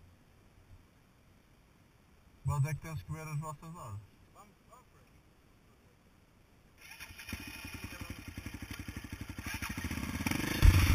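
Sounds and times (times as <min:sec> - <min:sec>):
dirt bike engine idling: 0:06.8 - 0:10.9.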